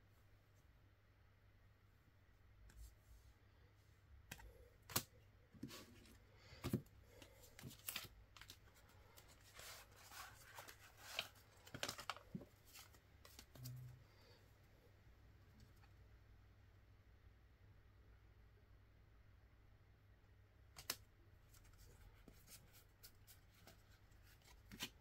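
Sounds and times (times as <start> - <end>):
playing cards clicking and snapping: 4.3 - 5.1, 20.8 - 21.0
packaging rustling: 7.6 - 13.0.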